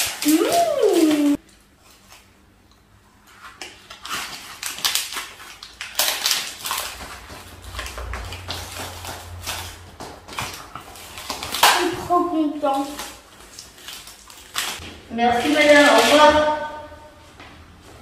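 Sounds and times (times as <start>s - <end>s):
wrapper and foil crinkling: 0.0s - 2.4s, 3.2s - 16.7s.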